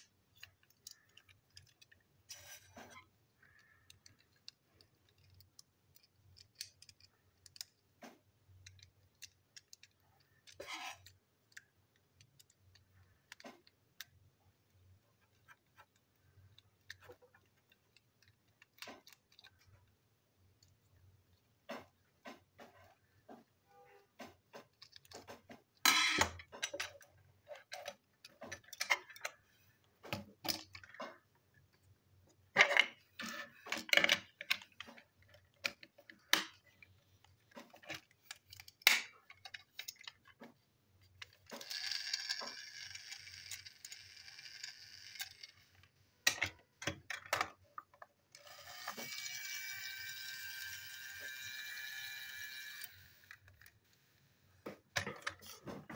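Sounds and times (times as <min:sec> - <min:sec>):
plastic toy parts clicking and knocking: 0:00.0 - 0:53.8, 0:54.7 - 0:55.9.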